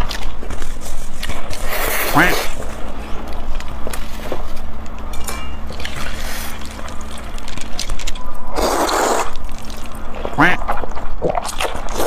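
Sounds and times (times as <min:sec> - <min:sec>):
clicks and rustles: 0:02.6 - 0:08.4
wet slurp of noodles: 0:08.5 - 0:09.9, 0:11.3 - 0:12.0.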